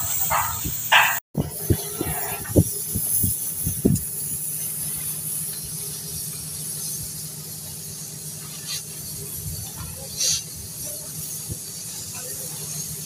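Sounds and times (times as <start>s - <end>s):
gas cutting torch hissing: 0.0s - 13.0s.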